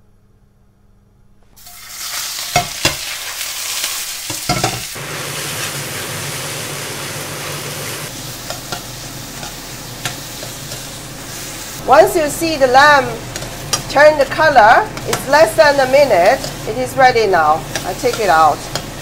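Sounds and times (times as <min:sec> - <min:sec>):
meat sizzling in a wok: 0:01.6 - 0:19.0
metal spatula knocking wok: 0:04.3 - 0:04.9, 0:17.6 - 0:19.0.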